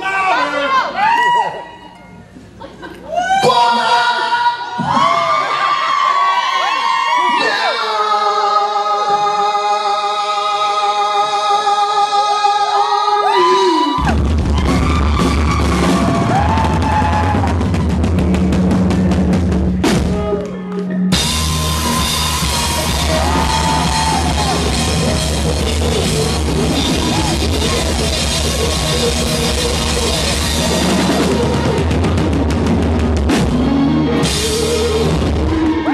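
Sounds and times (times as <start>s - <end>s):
heavy drums: 14.0s - 35.9s
live rock band: 14.0s - 35.9s.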